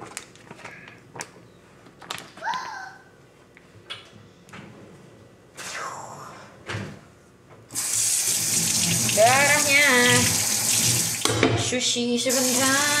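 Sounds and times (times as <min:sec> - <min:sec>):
water running into steel sink: 0:07.8 - 0:11.4, 0:12.3 - 0:13.0.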